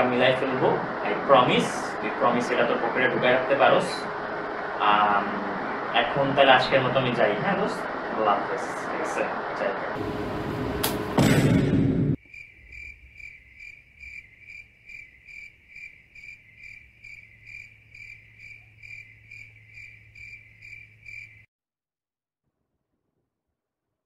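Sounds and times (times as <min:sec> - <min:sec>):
low steady hum: 0:00.0 - 0:12.2
cricket chirping: 0:12.2 - 0:21.5.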